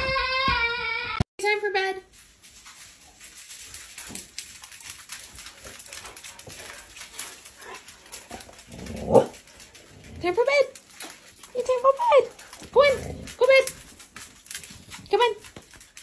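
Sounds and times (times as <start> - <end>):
dog claws clicking on floor: 2.2 - 16.0.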